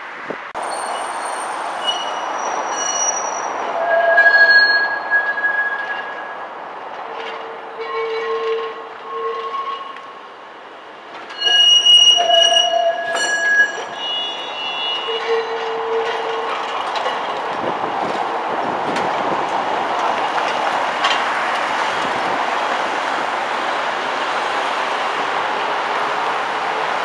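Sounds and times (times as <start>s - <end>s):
tram rolling rumble: 0.0s - 27.0s
tram wheels squealing: 0.6s - 10.2s, 11.1s - 17.4s.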